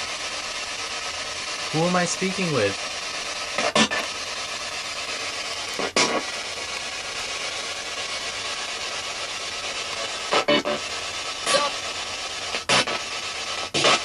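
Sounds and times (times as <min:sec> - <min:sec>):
radio static hiss: 0:00.0 - 0:14.0
short bursts of radio sound: 0:01.7 - 0:06.7, 0:09.9 - 0:14.0.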